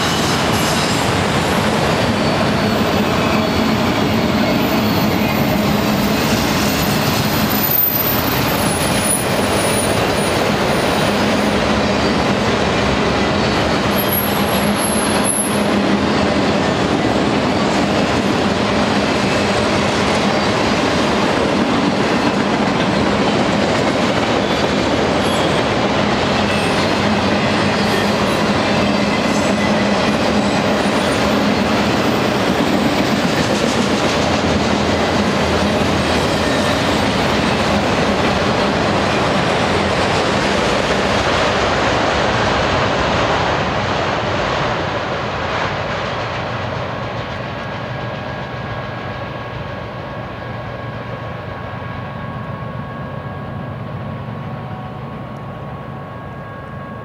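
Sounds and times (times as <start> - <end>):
train wheels rumbling on rails: 0.0 - 57.0
high-pitched wheel squeals: 1.5 - 12.3, 13.4 - 16.2, 25.2 - 25.7.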